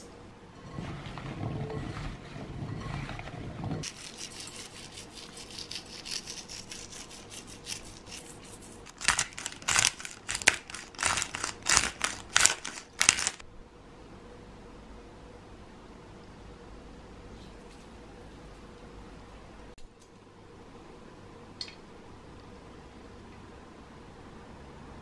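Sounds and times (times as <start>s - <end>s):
pepper grinder strokes: 3.8s - 13.4s
zucchini rustling in glass bowl: 3.8s - 13.4s.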